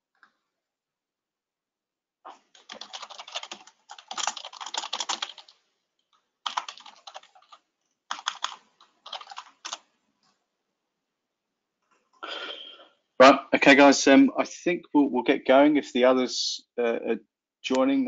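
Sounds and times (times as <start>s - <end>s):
fast typing on keyboard: 2.4s - 5.6s, 6.4s - 9.9s.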